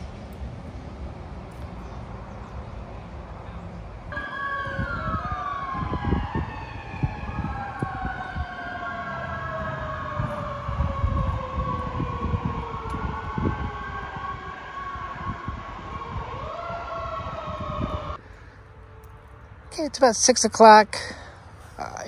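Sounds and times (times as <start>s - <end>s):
low rumbling: 1.8s - 18.2s
siren wailing: 4.1s - 18.2s.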